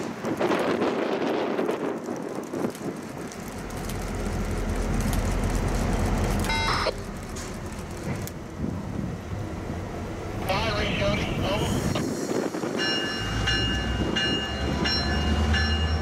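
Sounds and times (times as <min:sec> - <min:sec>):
wind buffeting microphone: 0:00.0 - 0:05.0, 0:07.9 - 0:09.9, 0:11.4 - 0:15.2
locomotive engine rumble: 0:00.0 - 0:16.0.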